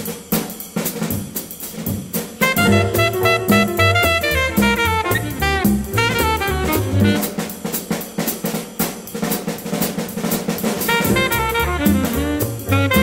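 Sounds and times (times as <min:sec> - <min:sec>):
jazz drum kit break: 0:00.0 - 0:13.0
alto saxophone: 0:02.4 - 0:07.6, 0:10.9 - 0:13.0.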